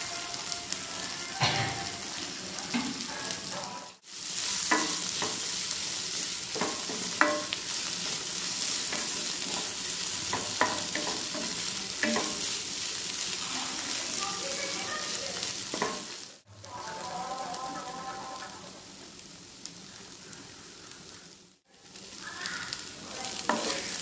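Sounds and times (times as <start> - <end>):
food sizzling in a pan: 0.0 - 24.0
spatula knocking on pan: 4.7 - 5.4, 6.6 - 7.6, 10.3 - 12.4
wooden spatula scraping a pan: 6.3 - 15.1, 23.4 - 24.0.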